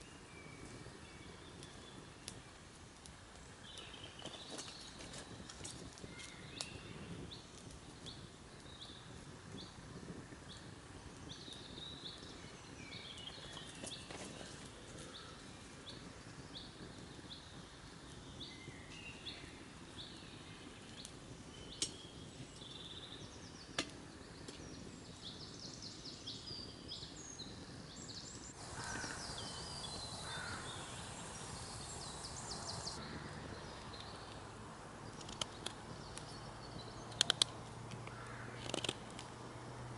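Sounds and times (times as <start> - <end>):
small birds chirping: 0.0 - 39.4
sharp cracks: 35.1 - 36.3, 37.1 - 39.4.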